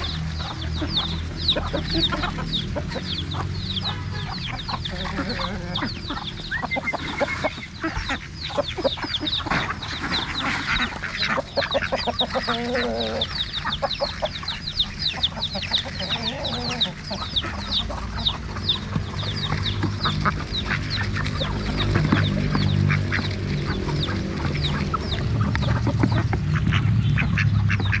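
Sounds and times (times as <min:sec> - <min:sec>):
duck bills clicking: 0:00.0 - 0:28.0
ducks quacking: 0:00.0 - 0:28.0.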